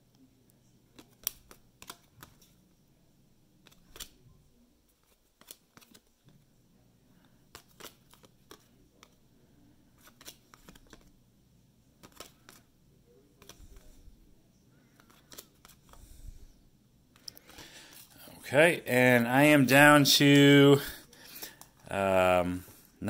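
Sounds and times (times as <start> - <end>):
cardboard cards flicking: 0.9 - 2.6, 3.6 - 4.2, 5.0 - 6.1, 7.5 - 9.2, 10.0 - 11.1, 12.0 - 12.7, 13.4 - 14.0, 15.0 - 16.1.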